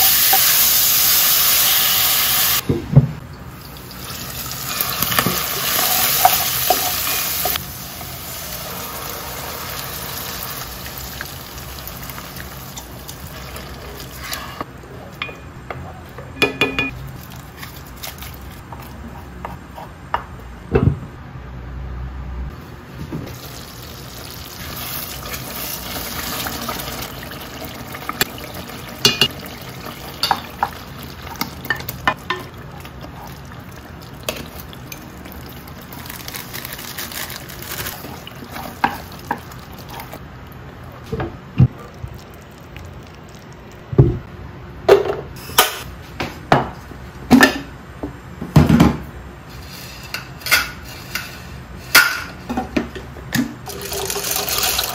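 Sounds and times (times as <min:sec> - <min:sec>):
meat and onions sizzling: 0:00.0 - 0:02.6, 0:03.8 - 0:14.3
spoon knocking against pot: 0:16.4 - 0:16.9.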